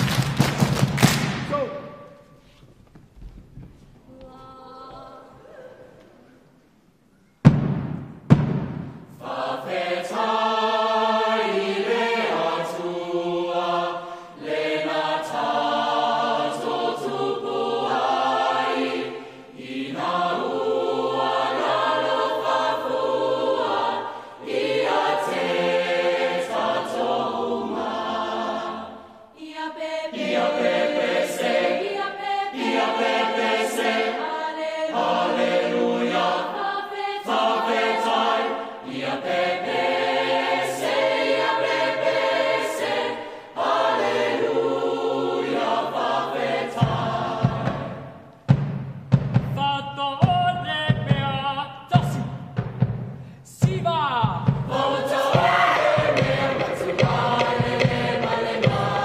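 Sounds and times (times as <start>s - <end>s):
loud thumps: 7.4s - 9.2s
mixed choir singing in harmony: 8.8s - 53.2s, 54.3s - 59.0s.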